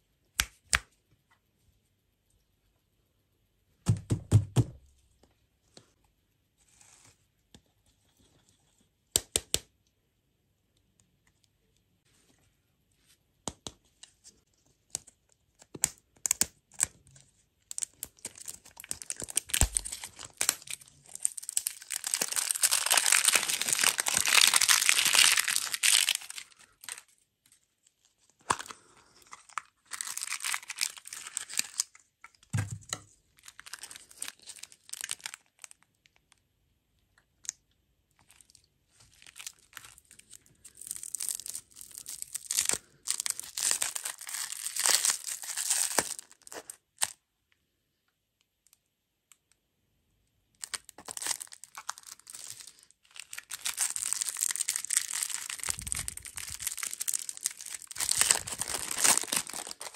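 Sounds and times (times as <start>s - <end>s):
plastic wrappers crinkling and tearing: 17.7s - 27.2s, 28.3s - 32.4s, 33.4s - 36.2s, 38.2s - 47.2s, 50.6s - 59.9s.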